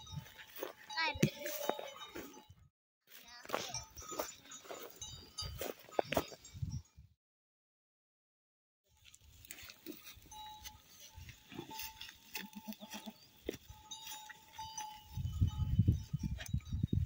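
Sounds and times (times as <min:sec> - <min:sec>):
sheep and goats bleating: 0:09.9 - 0:15.2.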